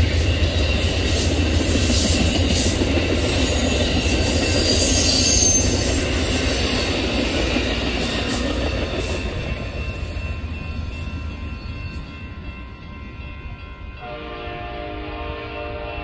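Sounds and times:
train wheels rumbling on rails: 0:00.0 - 0:16.0
high-pitched wheel squeal: 0:04.6 - 0:05.9.

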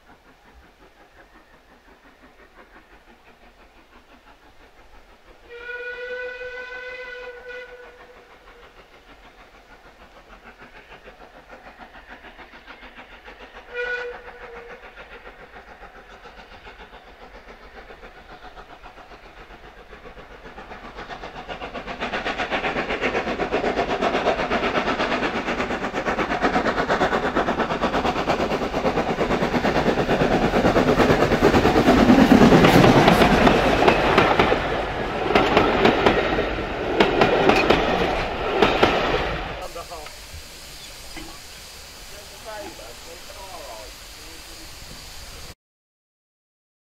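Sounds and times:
steam train passing: 0:00.0 - 0:45.6
steam whistle: 0:05.4 - 0:08.2, 0:13.6 - 0:14.8
wheels clattering over rails: 0:21.5 - 0:39.2.

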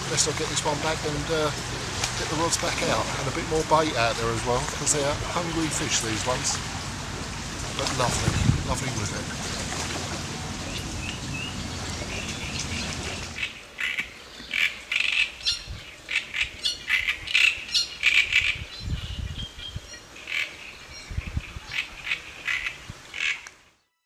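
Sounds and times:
steady outdoor noise: 0:00.0 - 0:23.8
warbler harsh chattering song: 0:10.6 - 0:23.4.

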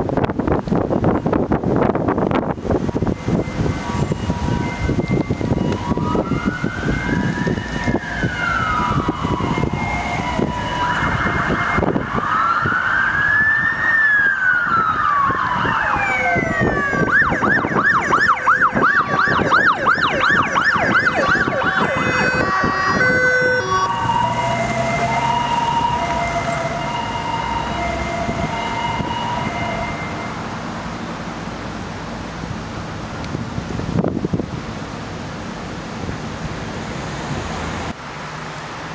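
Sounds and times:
engine and traffic noise: 0:00.0 - 0:38.9
ambulance siren yelp: 0:02.2 - 0:30.7
ambulance siren wailing: 0:02.2 - 0:30.8
two-note hi-lo siren: 0:02.5 - 0:30.6.

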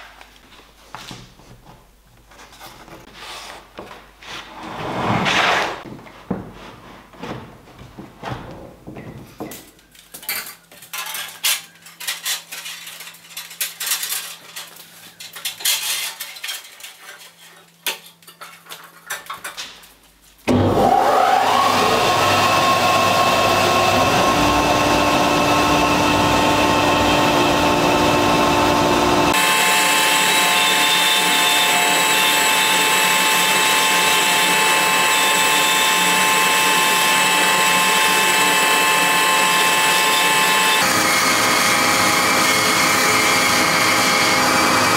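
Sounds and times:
bandsaw motor running: 0:20.5 - 0:44.9.

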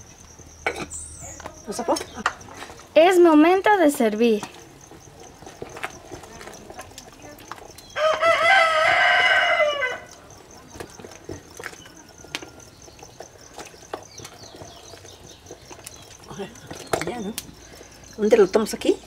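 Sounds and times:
rooster crowing: 0:07.9 - 0:10.2.

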